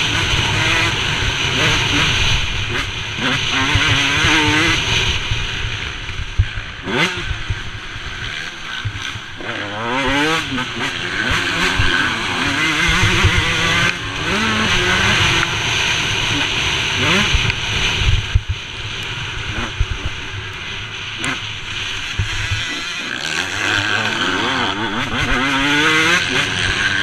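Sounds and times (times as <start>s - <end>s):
dirt bike engine revving: 0.0s - 27.0s
wind noise: 17.0s - 22.7s.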